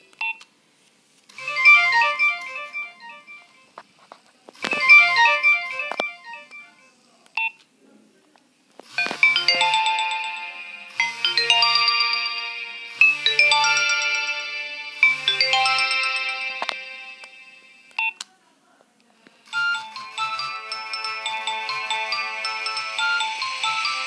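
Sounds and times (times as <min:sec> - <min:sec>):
phone ringtone melodies: 0:01.4 - 0:03.7, 0:04.7 - 0:06.9, 0:09.0 - 0:17.9, 0:19.5 - 0:24.0.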